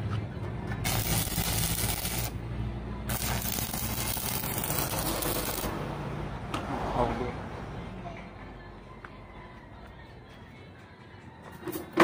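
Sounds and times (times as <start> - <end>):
welding arc crackling hiss: 0.8 - 2.4, 3.1 - 5.7.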